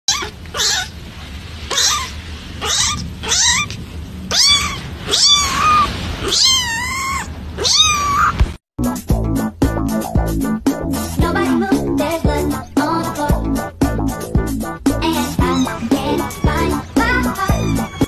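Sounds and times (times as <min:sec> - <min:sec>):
kitten meowing: 0:00.1 - 0:00.9, 0:01.7 - 0:08.4, 0:15.2 - 0:18.0.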